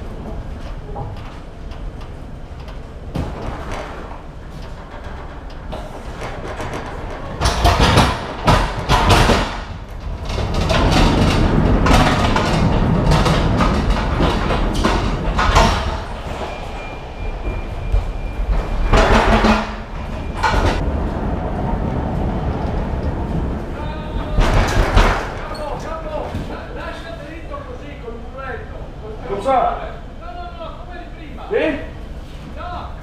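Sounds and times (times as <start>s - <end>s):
pallet truck rattling on metal floor: 0.0s - 26.2s
wooden crates banging: 3.1s - 16.6s, 23.8s - 25.5s
forklift engine hum: 9.7s - 24.9s.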